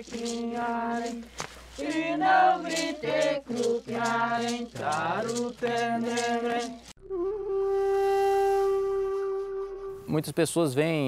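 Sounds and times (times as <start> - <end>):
men and women chanting together: 1.8 - 6.8.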